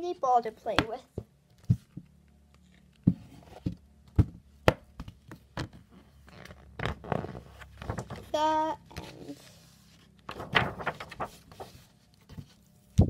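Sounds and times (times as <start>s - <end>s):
book handling knocks and taps: 0.7s - 2.1s, 2.9s - 8.3s.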